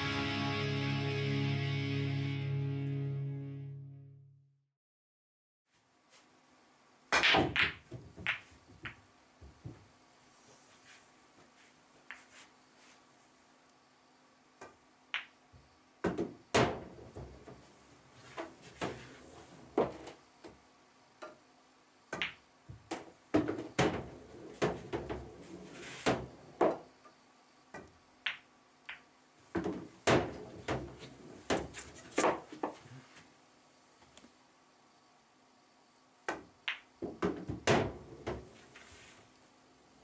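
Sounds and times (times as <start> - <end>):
pool balls clacking: 22.2 - 26.8, 29.5 - 32.8.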